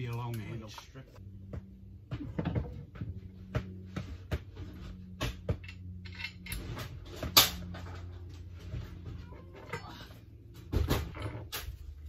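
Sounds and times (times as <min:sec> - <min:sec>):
metal tools clinking on workbench: 0:05.6 - 0:06.7.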